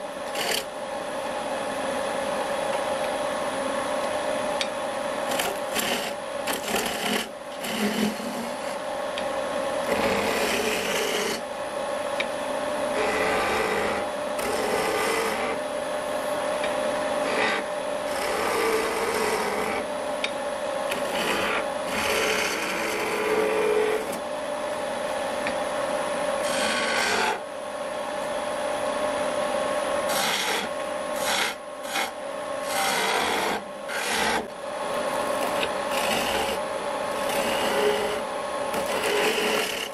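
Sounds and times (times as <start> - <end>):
chisel shaving spinning wood: 0.0 - 0.8, 5.2 - 8.9, 9.7 - 11.5, 12.8 - 20.0, 20.8 - 24.3, 26.3 - 27.4, 29.2 - 39.9
wood lathe humming: 0.0 - 0.8, 5.2 - 11.6, 12.2 - 20.0, 20.8 - 24.3, 25.4 - 27.4, 29.1 - 39.9.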